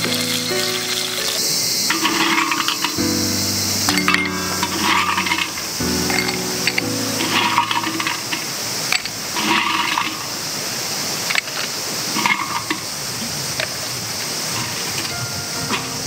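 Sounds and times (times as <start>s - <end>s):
ice clinking: 0.0s - 3.0s, 3.8s - 10.3s.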